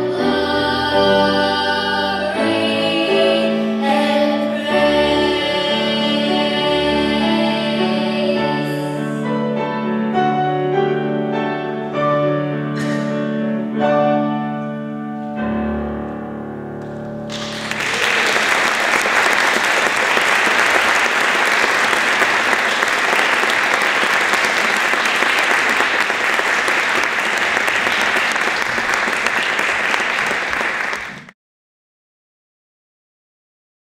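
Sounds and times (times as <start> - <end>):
children's choir singing: 0.0 - 9.5
piano playing: 0.0 - 29.0
audience applause: 17.3 - 31.3.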